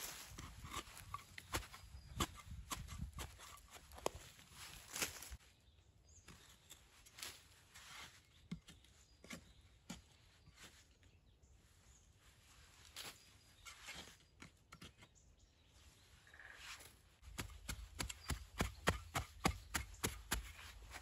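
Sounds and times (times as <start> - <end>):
hand shovel digging soil: 0.0 - 5.4, 16.7 - 21.0.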